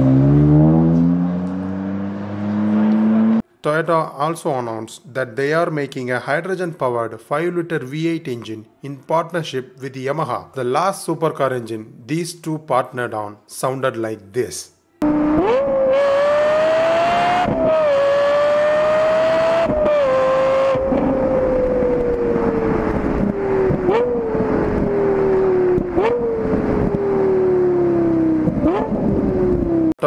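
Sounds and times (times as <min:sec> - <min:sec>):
sports car engine revving: 0:00.0 - 0:03.4, 0:15.0 - 0:29.9.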